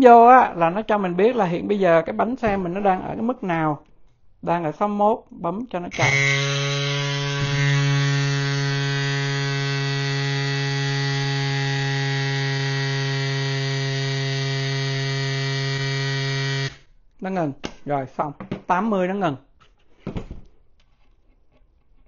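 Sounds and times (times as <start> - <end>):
electric bike pump humming: 6.0 - 16.8.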